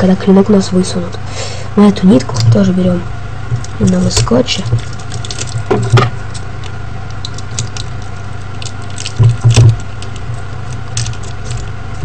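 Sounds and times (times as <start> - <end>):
low electrical hum: 0.0 - 12.0
tape and paper rustling: 3.5 - 12.0.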